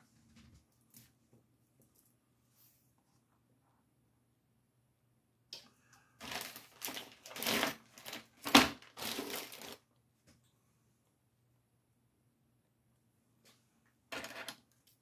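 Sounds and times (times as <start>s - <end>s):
plastic packaging crinkling: 6.2s - 9.8s.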